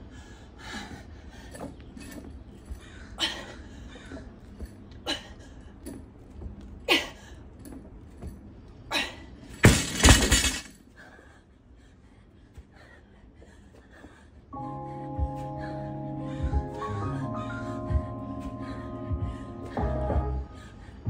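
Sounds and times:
barbell crashing onto mats: 9.6 - 10.7.

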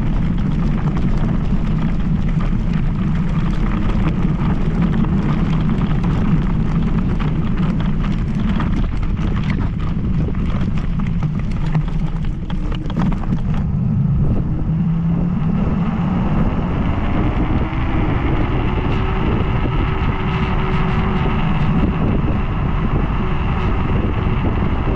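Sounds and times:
scooter knocks and rattles: 0.0 - 13.7
wind rushing over microphone: 0.0 - 24.9.

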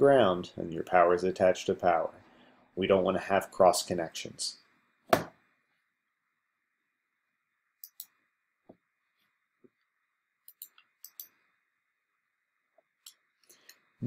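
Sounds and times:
sharp knock: 5.1 - 5.4
small objects clicking on desk: 10.5 - 11.4.

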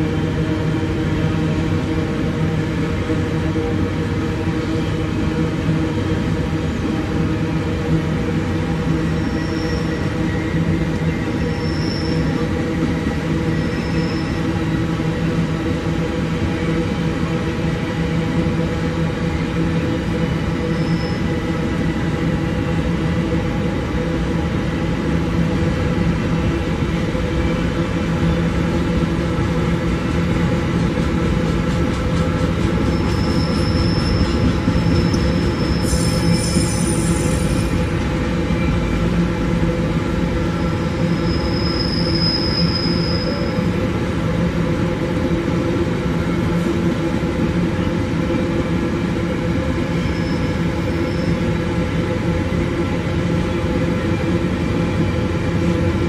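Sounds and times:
train wagons rumbling on rails: 0.0 - 56.0
high wheel squeal: 9.2 - 10.1, 11.4 - 12.4, 13.5 - 14.6, 20.7 - 21.3, 32.8 - 37.9, 41.0 - 43.7, 49.9 - 51.5.

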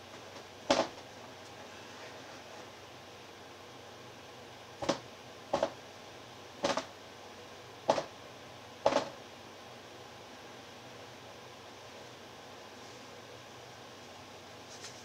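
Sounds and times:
rubber mallet knocking on tile: 7.9 - 8.1, 8.9 - 9.2.

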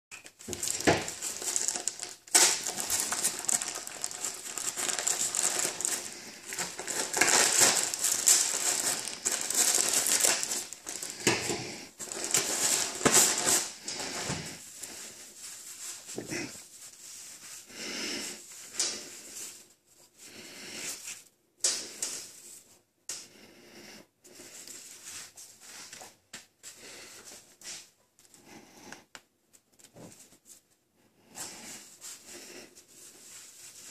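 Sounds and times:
plastic bag crinkling: 0.2 - 14.6
cord rustling as unwound: 0.2 - 17.6.

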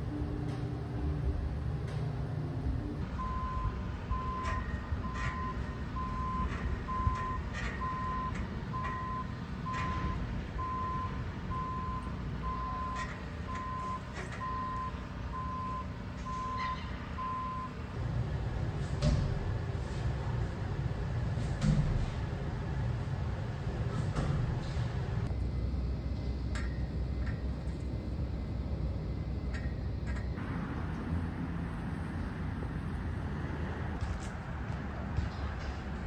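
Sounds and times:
low outdoor rumble: 0.0 - 36.0
reversing alarm beeping: 3.1 - 17.8.

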